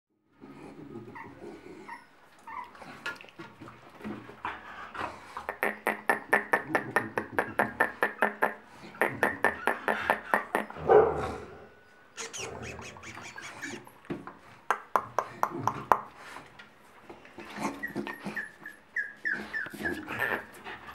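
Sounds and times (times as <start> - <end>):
puppies yapping and whimpering: 1.0 - 3.5, 12.1 - 14.0, 17.4 - 20.9
puppy bark: 10.8 - 11.2.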